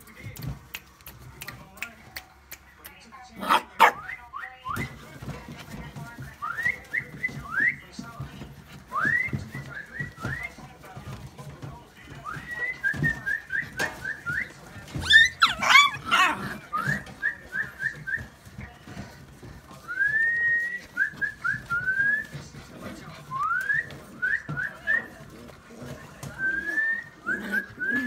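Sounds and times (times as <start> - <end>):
puppies whining: 12.2 - 28.0
puppy yelping: 15.0 - 16.6.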